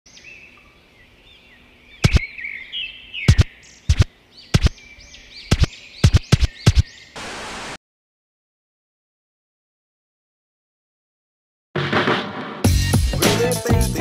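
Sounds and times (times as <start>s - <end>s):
birds chirping: 0.1s - 7.2s.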